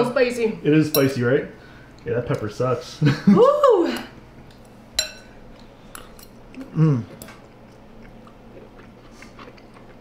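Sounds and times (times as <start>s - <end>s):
utensil clinking on bowl: 5.0s - 6.4s
faint eating clicks: 5.6s - 10.0s
person humming mm: 6.6s - 7.2s.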